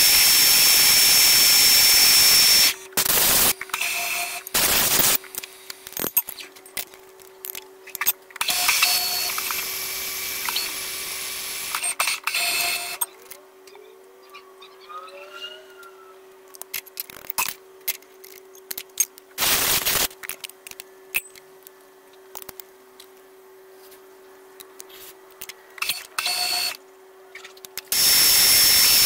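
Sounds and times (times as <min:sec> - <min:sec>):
milling machine cutting metal whine: 0:28.0 - 0:29.0.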